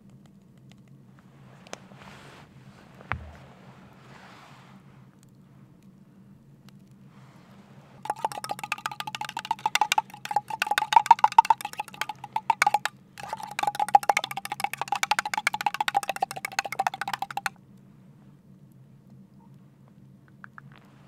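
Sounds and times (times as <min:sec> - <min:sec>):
spoon clinking in a mug: 0:08.1 - 0:17.5.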